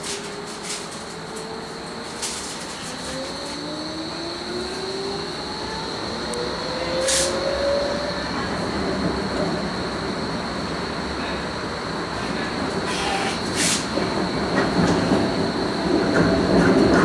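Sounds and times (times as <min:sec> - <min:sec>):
traction drive whine: 0:00.0 - 0:17.0
tram wheel noise: 0:00.0 - 0:17.0
short hiss: 0:12.9 - 0:13.9.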